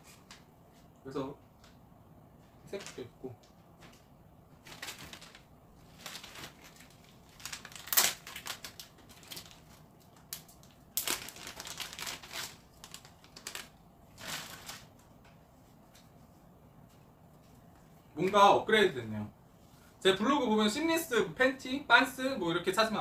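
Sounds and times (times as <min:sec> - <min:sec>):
plastic packaging crinkling: 0:04.6 - 0:15.0.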